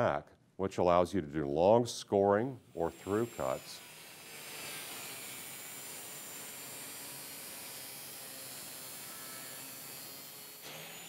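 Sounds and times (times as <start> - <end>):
angle grinder cutting metal: 2.7 - 11.0.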